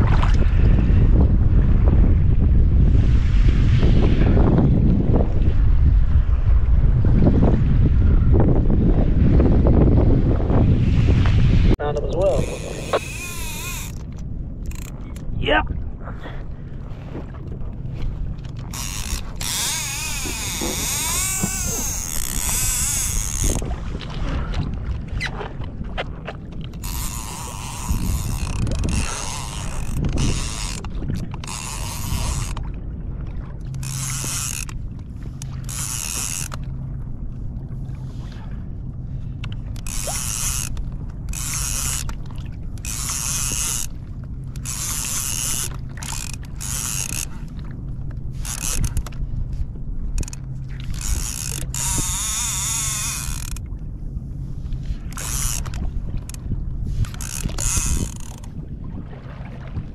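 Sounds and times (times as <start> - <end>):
fishing reel gear rattle: 12.3 - 15.2, 18.5 - 23.6, 26.7 - 32.6, 33.7 - 36.7, 39.4 - 47.5, 48.3 - 49.2, 50.2 - 53.6, 55.1 - 56.4, 57.0 - 58.5.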